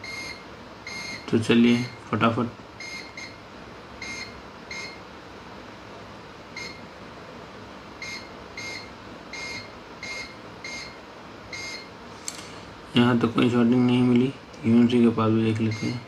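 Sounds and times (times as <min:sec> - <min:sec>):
multimeter short beeps: 0:00.0 - 0:01.3, 0:04.0 - 0:05.0, 0:08.0 - 0:11.0
steady background hiss: 0:00.0 - 0:16.0.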